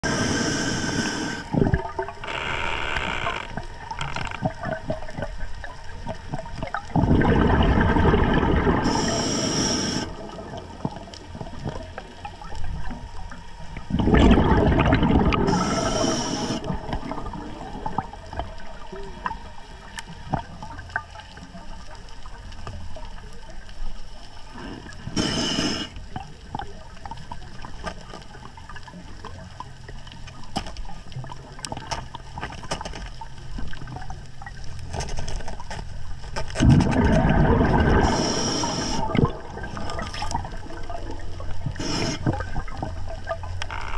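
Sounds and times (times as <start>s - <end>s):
diver breathing through regulator: 0.0s - 1.6s, 8.8s - 10.4s, 15.3s - 16.8s, 24.5s - 26.0s, 37.7s - 40.3s, 41.7s - 42.4s
rumble of exhaled bubbles: 0.0s - 29.9s, 36.0s - 43.9s
steady underwater hiss: 0.0s - 43.9s.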